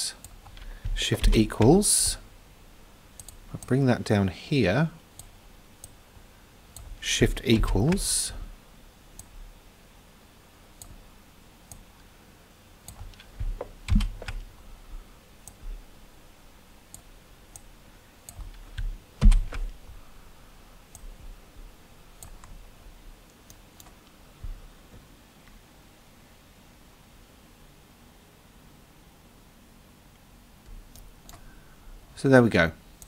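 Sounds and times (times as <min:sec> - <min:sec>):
keyboard keys clicking: 0:00.2 - 0:02.2, 0:12.9 - 0:14.5, 0:18.3 - 0:19.8
computer mouse clicks: 0:03.2 - 0:03.7, 0:11.7 - 0:11.9, 0:12.8 - 0:14.5, 0:15.4 - 0:15.6, 0:16.9 - 0:19.8, 0:22.2 - 0:22.6, 0:23.3 - 0:24.1, 0:30.9 - 0:31.5.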